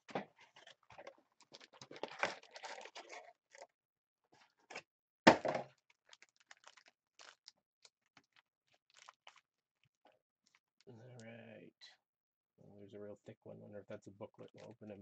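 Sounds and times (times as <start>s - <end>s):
card packs crinkling and tearing: 0.6s - 3.3s, 5.8s - 7.5s, 8.2s - 9.4s.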